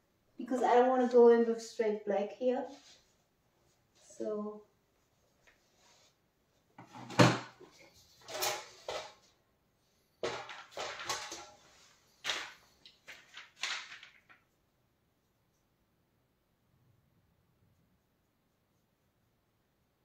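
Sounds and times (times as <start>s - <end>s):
paintbrush swishing on wall: 2.6s - 4.1s.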